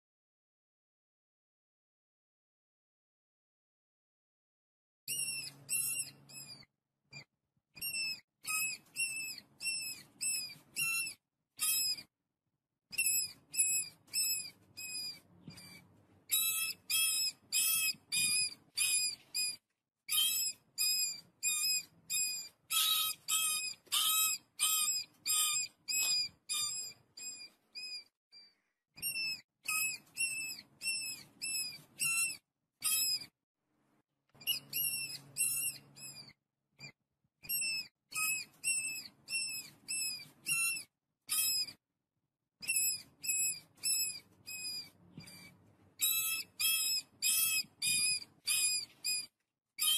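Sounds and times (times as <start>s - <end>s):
mice squeaking: 5.1s - 12.1s, 12.9s - 33.3s, 34.4s - 41.8s, 42.6s - 49.9s.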